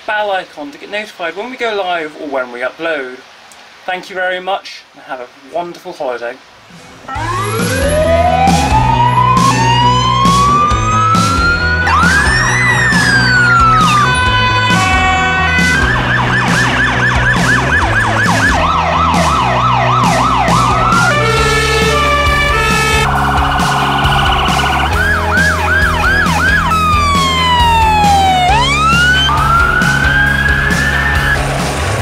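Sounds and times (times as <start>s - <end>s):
emergency vehicle sirens: 7.1s - 32.0s.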